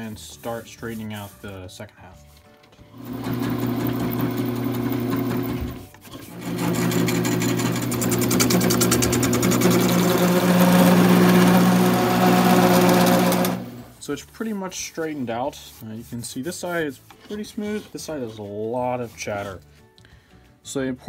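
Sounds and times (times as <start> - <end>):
turning tool rasping on wood: 3.0 - 13.8, 16.0 - 19.6
lathe motor hum: 3.0 - 13.9.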